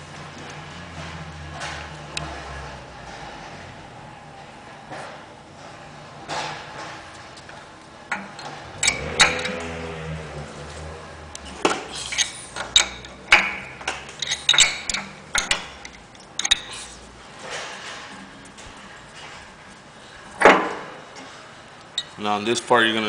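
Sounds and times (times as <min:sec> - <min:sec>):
wrench clinking on brass fittings: 0:08.1 - 0:09.8, 0:11.6 - 0:16.9, 0:22.0 - 0:22.2.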